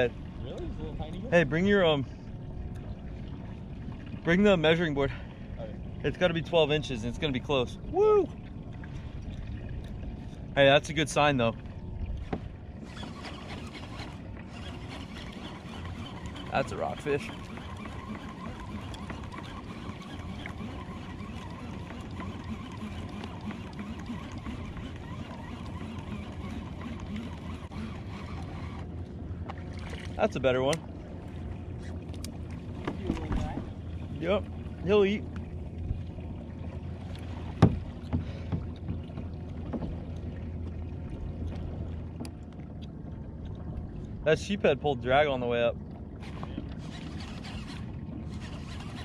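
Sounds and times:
water moving against kayak hull: 0:00.0 - 0:49.0.

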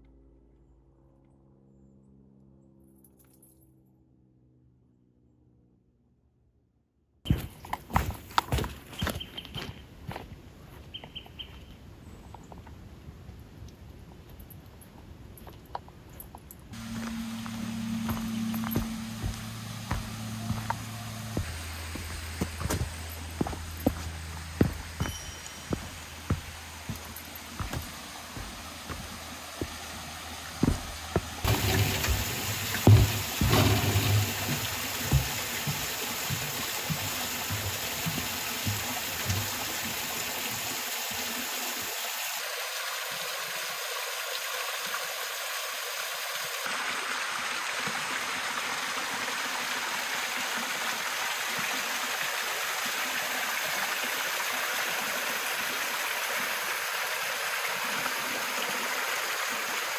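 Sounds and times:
footsteps on wooden footbridge: 0:07.3 - 0:11.7, 0:16.8 - 0:40.7
waterfall and creek rushing: 0:16.8 - 0:59.9.

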